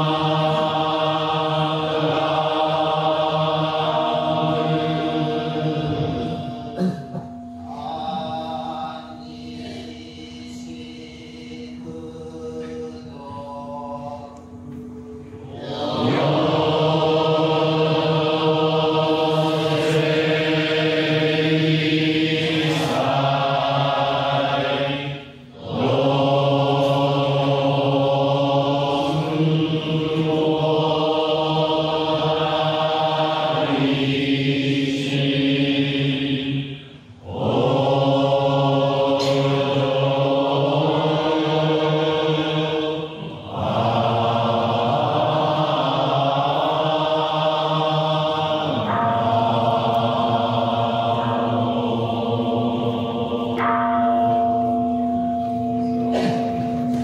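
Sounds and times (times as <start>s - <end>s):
crowd chanting in unison: 0.0s - 7.0s, 15.5s - 53.9s.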